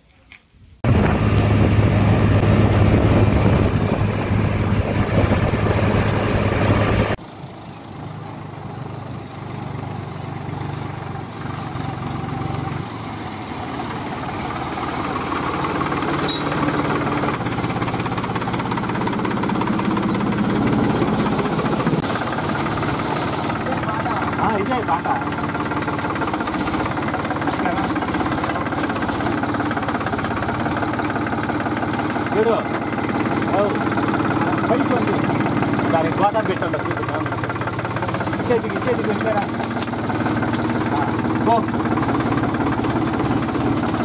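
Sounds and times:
quieter engine sound: 0.8 - 44.0
tractor diesel engine running: 0.8 - 44.0.

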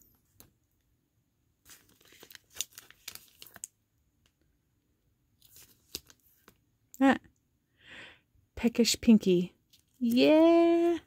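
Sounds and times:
cards rustling and clicking: 1.6 - 3.7, 5.4 - 6.6, 9.7 - 11.0.

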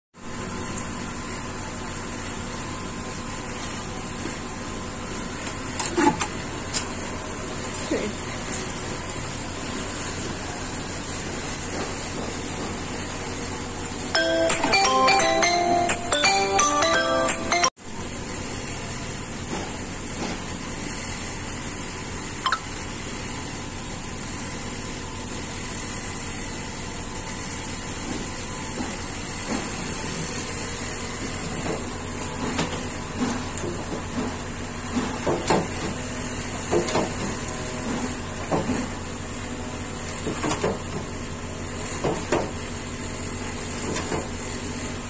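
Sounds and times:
kitchen hiss and hum: 0.2 - 15.9, 17.9 - 45.0
music: 14.2 - 17.7.

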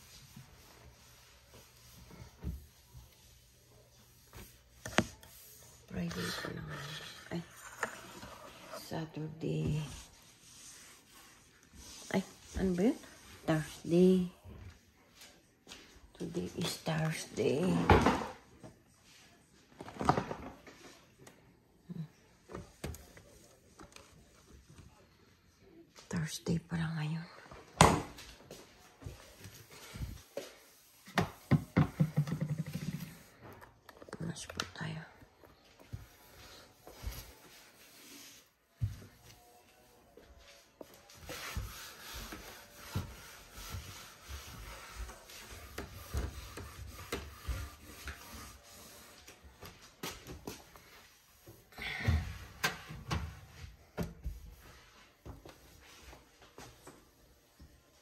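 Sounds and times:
cloth wiping a surface: 0.0 - 14.4, 28.6 - 33.4, 35.8 - 49.8.

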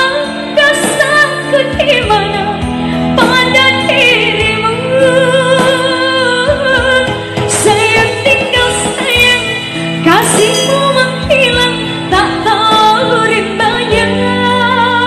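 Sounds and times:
woman singing into a microphone: 0.0 - 15.0
backing music: 10.0 - 11.7.

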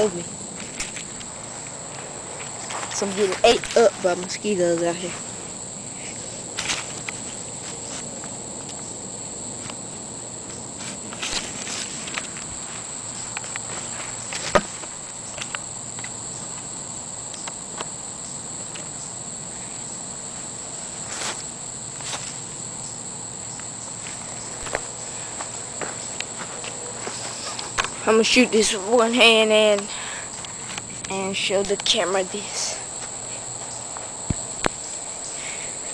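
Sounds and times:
insects chirping: 0.0 - 35.9
clicks and rustles of plants: 10.8 - 12.5.

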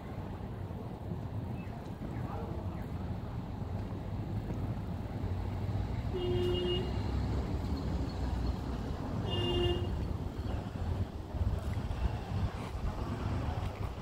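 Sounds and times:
vehicle horn beeps: 6.1 - 7.0, 9.2 - 10.0.

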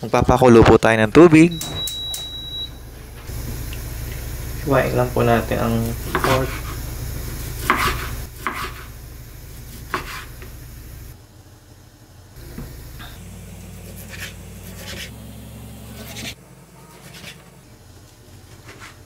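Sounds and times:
low hum: 1.0 - 11.2, 12.4 - 16.6
knife cutting on cutting board: 7.6 - 8.9, 9.7 - 10.3.

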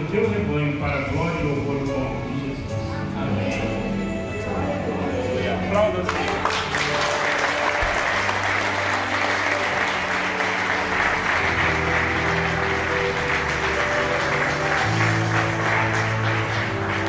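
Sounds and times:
instrumental music sustained chords: 0.0 - 17.0
crowd applauding: 5.9 - 17.0.

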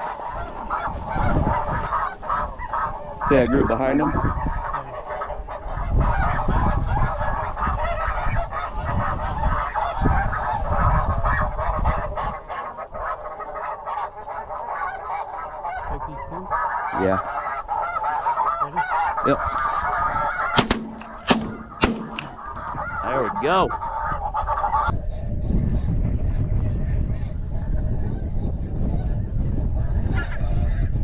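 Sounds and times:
wind on microphone: 0.0 - 15.1, 15.7 - 31.0
geese honking: 0.0 - 24.9
sharp crack: 20.4 - 22.6.

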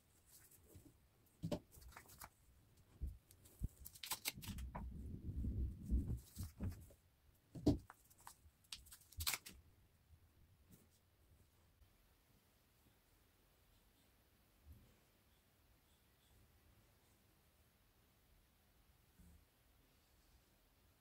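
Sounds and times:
fabric rustling: 5.2 - 7.1.

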